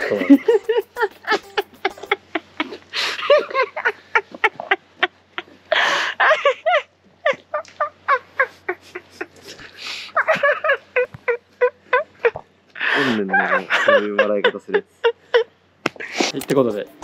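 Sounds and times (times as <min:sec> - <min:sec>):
young man laughing: 0:00.0 - 0:12.4, 0:13.0 - 0:15.5
wheezy breaths: 0:05.7 - 0:06.2, 0:09.5 - 0:10.2.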